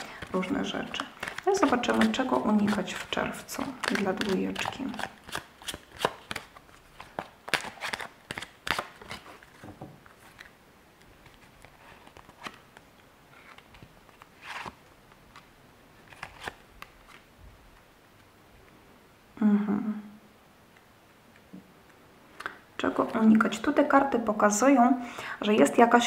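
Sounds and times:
cards being shuffled: 0:00.0 - 0:17.3.

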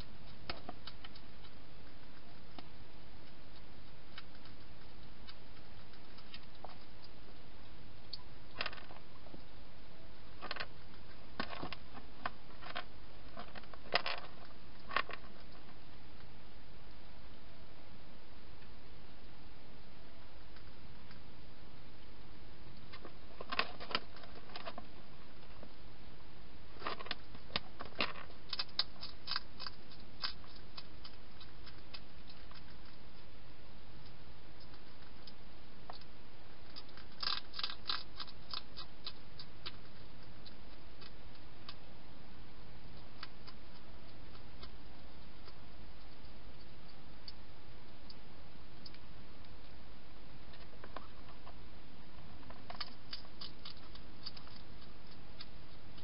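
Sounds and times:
hedgehog crunching dry food: 0:00.2 - 0:07.2, 0:22.7 - 0:25.7, 0:26.8 - 0:33.4, 0:34.0 - 0:42.1, 0:42.7 - 0:48.2, 0:52.2 - 0:56.0.

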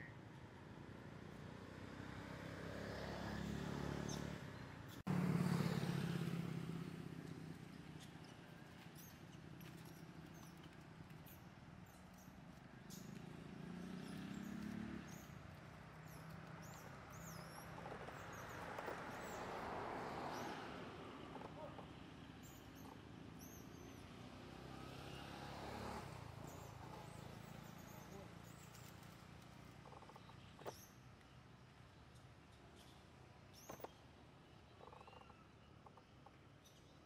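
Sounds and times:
traffic hum: 0:00.2 - 0:36.6
vehicle passing: 0:01.2 - 0:04.5, 0:05.1 - 0:07.7, 0:13.0 - 0:22.9, 0:24.0 - 0:30.0.

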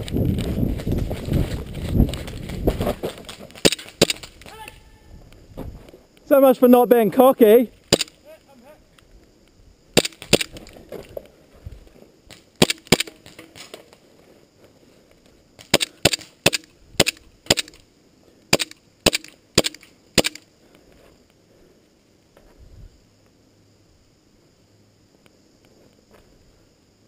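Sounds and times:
airsoft pistol shots: 0:07.9 - 0:08.2, 0:12.6 - 0:13.2, 0:15.7 - 0:17.8, 0:18.5 - 0:20.4.

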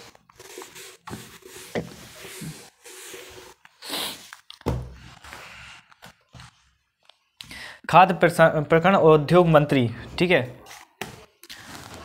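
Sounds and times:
duster wiping whiteboard: 0:00.0 - 0:04.2.

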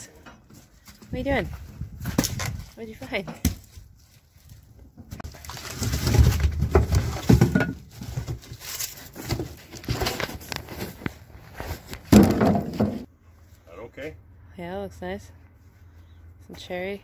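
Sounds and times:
goats knocking firewood: 0:02.0 - 0:03.9.

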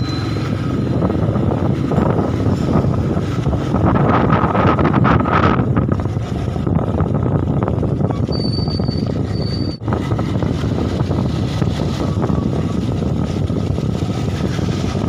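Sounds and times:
high-pitched squeals: 0:00.0 - 0:01.1, 0:08.2 - 0:09.8
motorcycle engine and road noise: 0:00.0 - 0:15.0.

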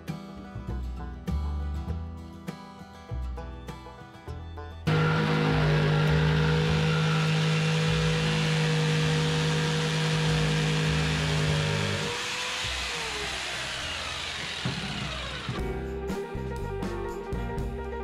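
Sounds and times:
electric jigsaw cutting panel: 0:04.9 - 0:15.8
motor winding down whine: 0:04.9 - 0:15.9.

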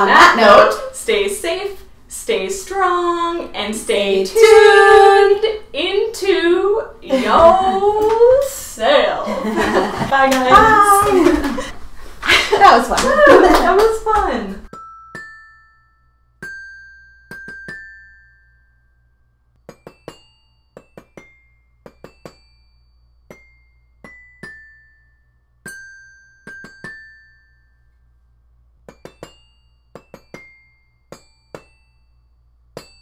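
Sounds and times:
bell-like struck notes: 0:04.4 - 0:05.5, 0:14.7 - 0:28.3, 0:28.9 - 0:33.0.

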